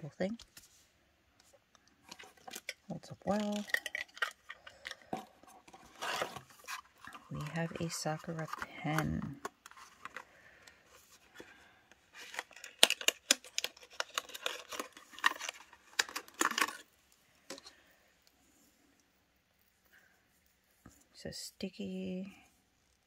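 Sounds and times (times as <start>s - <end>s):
plastic packaging crinkling and tearing: 2.0s - 17.7s.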